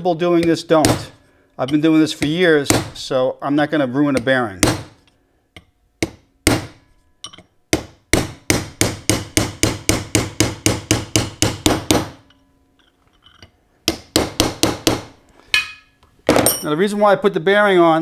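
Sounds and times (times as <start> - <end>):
hammer tapping metal punch: 4.2 - 12.4.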